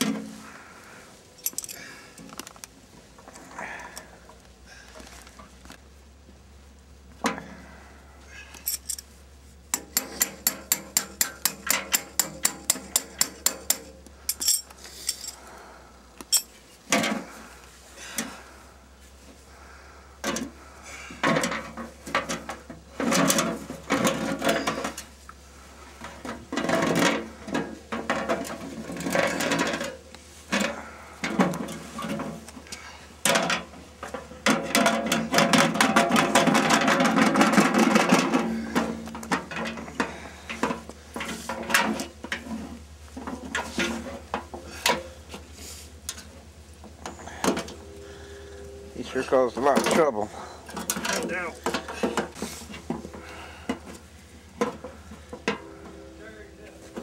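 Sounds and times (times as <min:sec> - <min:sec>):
metal knocks and clanks: 0:09.7 - 0:14.4, 0:21.2 - 0:25.1, 0:26.0 - 0:32.4, 0:33.2 - 0:45.1, 0:49.0 - 0:54.0, 0:54.6 - 0:57.0.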